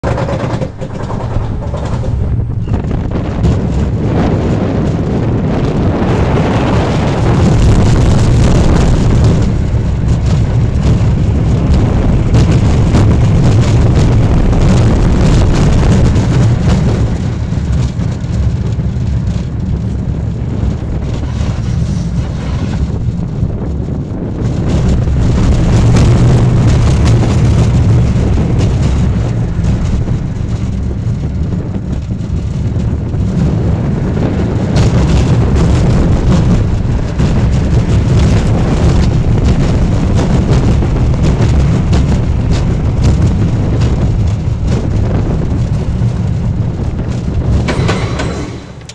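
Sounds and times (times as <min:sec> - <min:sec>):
roller coaster wheels rumbling on rails: 0:00.0 - 0:48.9
wind rushing over microphone: 0:00.0 - 0:48.9.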